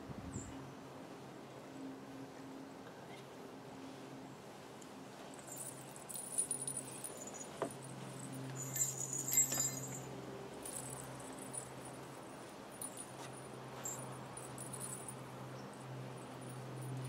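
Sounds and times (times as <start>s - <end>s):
small metal pieces jingling: 5.4s - 7.6s, 8.2s - 11.9s, 12.8s - 13.2s, 13.8s - 15.1s.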